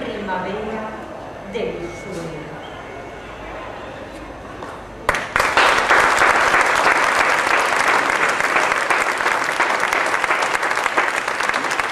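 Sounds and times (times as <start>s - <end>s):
audience applauding: 5.1s - 11.9s.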